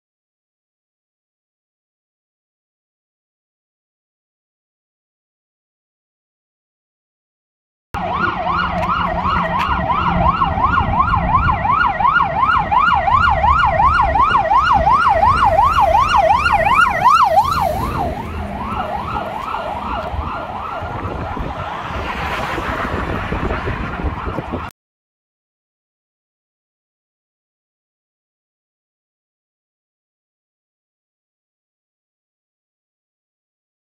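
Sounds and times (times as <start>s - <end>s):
fire engine siren yelping: 8.0s - 24.7s
truck road noise: 8.0s - 24.7s
car passing close by: 14.2s - 24.7s.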